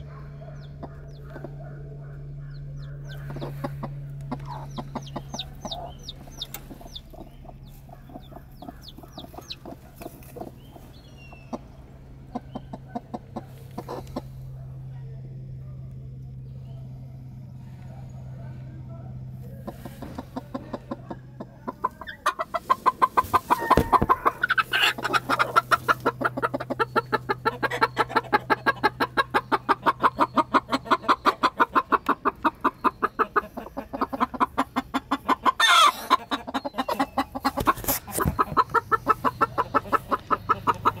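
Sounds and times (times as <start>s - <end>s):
hens clucking: 0.0s - 41.0s
sharp hen call: 23.4s - 25.4s.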